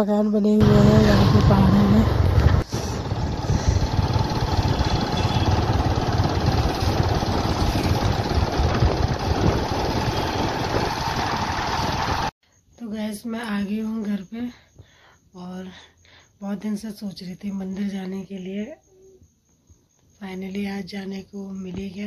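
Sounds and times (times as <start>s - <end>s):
motorcycle engine running: 0.6s - 12.3s
wind and road noise: 0.6s - 12.3s.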